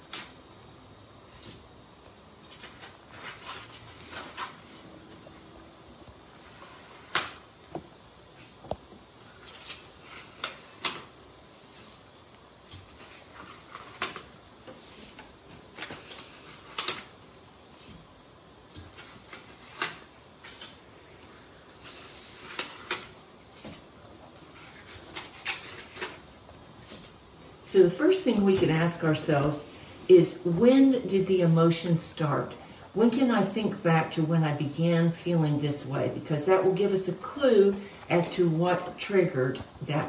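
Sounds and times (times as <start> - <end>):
sticky notes peeling and rustling: 9.3 - 17.1, 21.8 - 27.2.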